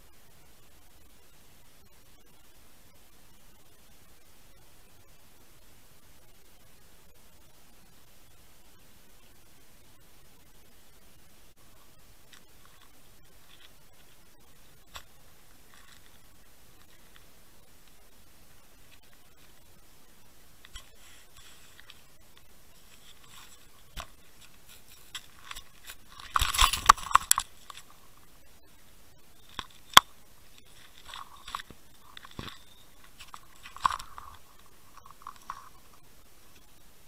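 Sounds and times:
underwater crunching and scraping: 14.8s - 18.0s, 20.6s - 28.3s, 29.4s - 36.6s.

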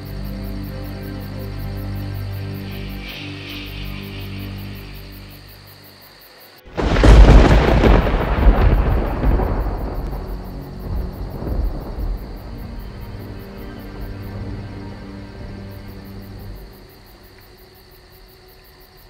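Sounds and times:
soft eerie background music: 0.0s - 19.0s
thunderclap rolling into rumble: 6.7s - 13.2s.

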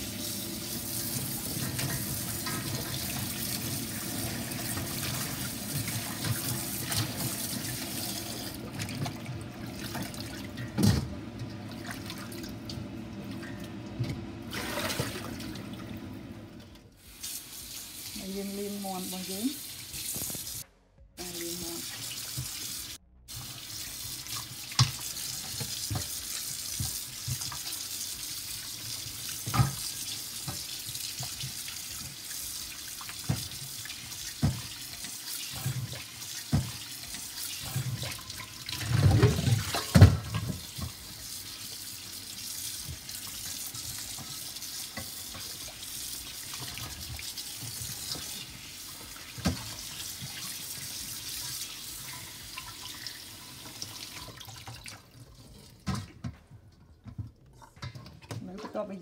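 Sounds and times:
water splashing and handling: 0.8s - 20.6s, 23.3s - 59.0s
tap running into bowl of water: 24.7s - 26.2s.

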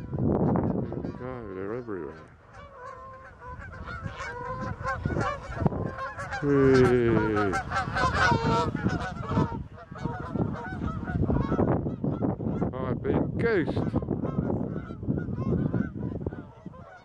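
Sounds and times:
geese honking in flight: 0.0s - 17.0s.

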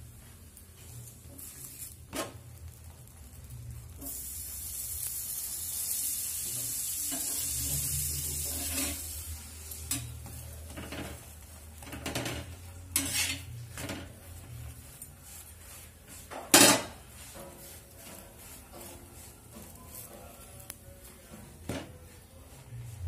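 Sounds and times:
bread sizzling in butter: 0.0s - 22.8s
steel spatula scraping griddle: 6.6s - 22.8s.

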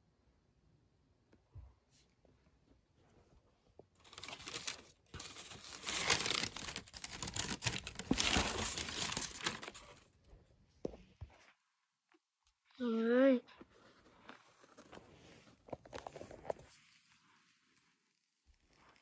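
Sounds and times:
tissue paper crinkling: 4.0s - 10.0s.

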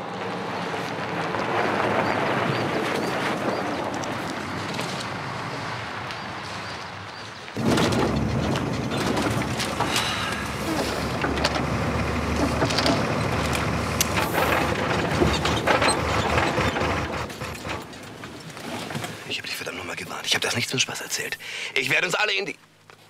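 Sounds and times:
low engine rumble: 0.0s - 18.4s
truck cab rattling: 7.6s - 19.2s.

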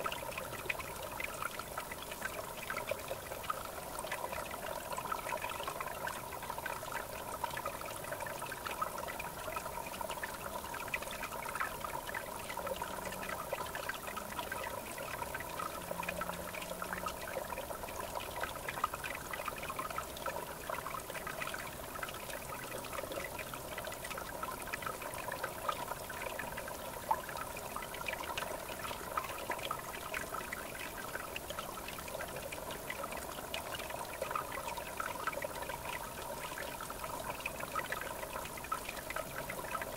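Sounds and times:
river water flowing: 0.0s - 39.9s
babbling trickle: 5.8s - 19.6s.

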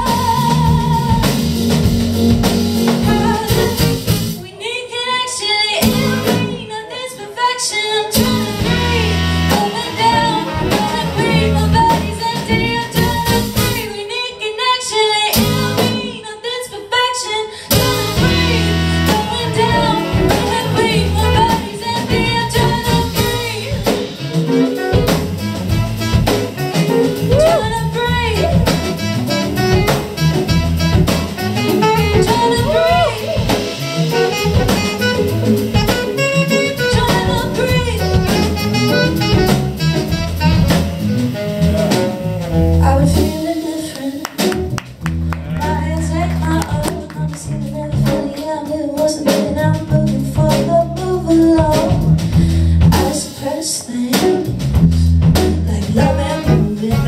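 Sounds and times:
saxophone lead lines: 0.0s - 4.4s, 5.8s - 6.7s, 8.1s - 14.0s, 17.7s - 48.4s, 54.1s - 57.0s
live jazz band playing: 0.0s - 4.6s, 5.8s - 6.8s, 8.1s - 16.3s, 17.7s - 57.0s.

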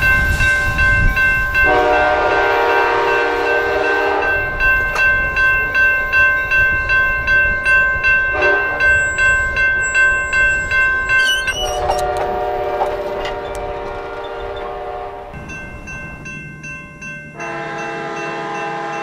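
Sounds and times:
train horn chord: 1.6s - 4.6s, 8.3s - 9.1s, 11.7s - 15.5s, 17.4s - 19.0s
bell ringing rapidly: 4.3s - 12.1s.

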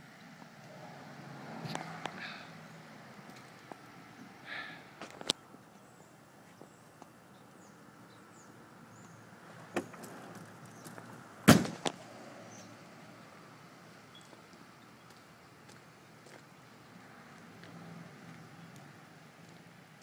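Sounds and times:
loud thump: 11.5s - 11.9s.

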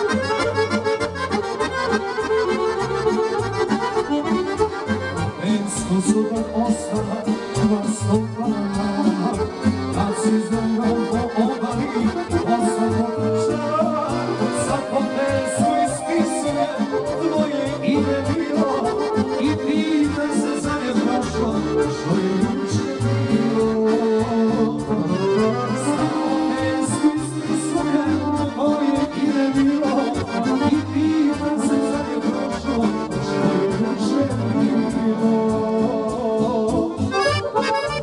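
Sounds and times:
accordion playing folk tune: 0.0s - 38.0s.

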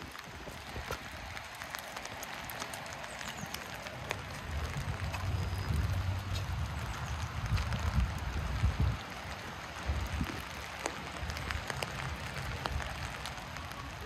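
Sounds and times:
rain hiss: 0.0s - 14.0s
low rumble: 3.9s - 9.0s.

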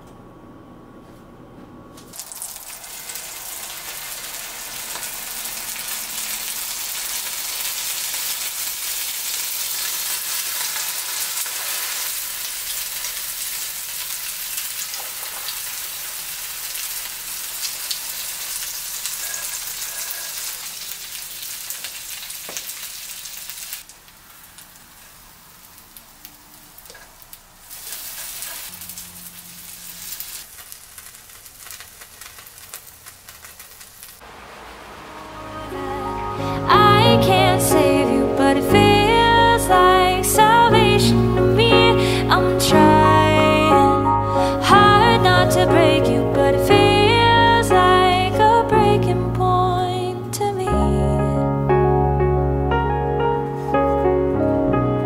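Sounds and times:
bread sizzling in frying pan: 2.1s - 35.1s.

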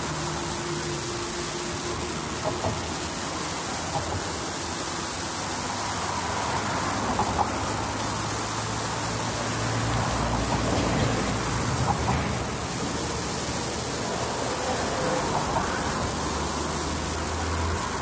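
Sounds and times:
steady rushing noise: 0.0s - 18.0s.

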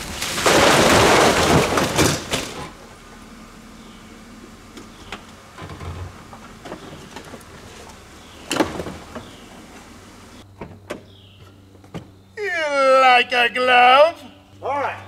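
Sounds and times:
car door opening: 4.7s - 9.9s.

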